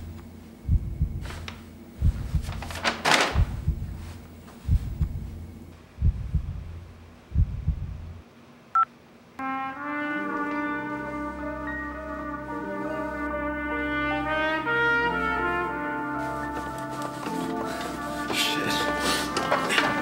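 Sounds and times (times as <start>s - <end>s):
low heartbeat-like thumps: 0.6s - 1.4s, 2.0s - 2.6s, 3.4s - 8.2s
brass held chords: 9.4s - 20.0s.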